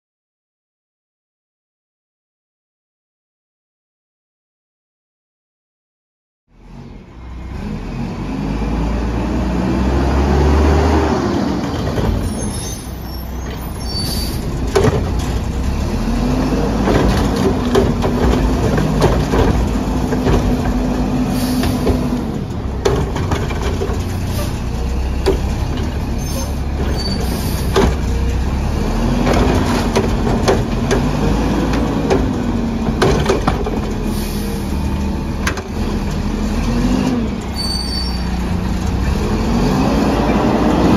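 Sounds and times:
garbage truck engine revving: 0:06.6 - 0:40.9
metallic clanks and bangs: 0:16.7 - 0:28.4.

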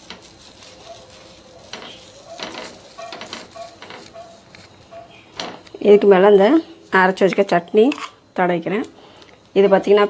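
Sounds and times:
food sizzling on griddle: 0:00.0 - 0:04.0.

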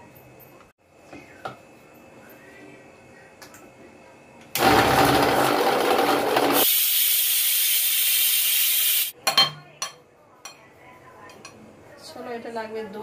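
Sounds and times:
mixer grinder running: 0:04.6 - 0:07.0.

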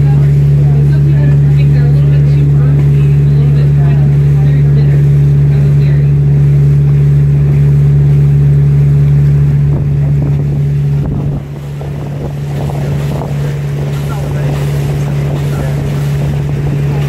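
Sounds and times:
boat engine droning: 0:00.0 - 0:17.0
wind buffeting microphone: 0:00.0 - 0:17.0.

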